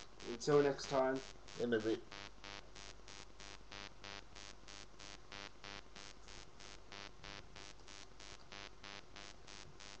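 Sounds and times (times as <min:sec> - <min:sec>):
pulsing electronic buzz: 0:00.0 - 0:10.0.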